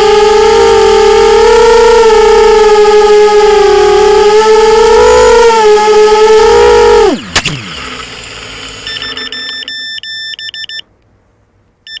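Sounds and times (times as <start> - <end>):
quadcopter motors whining: 0.0 - 9.6
high electronic beeping: 8.5 - 10.8.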